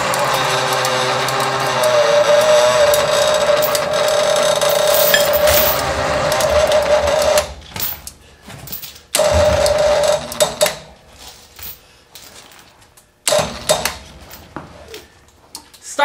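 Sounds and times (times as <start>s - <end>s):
electric winch motor whirring: 0.0s - 7.6s, 9.2s - 10.7s.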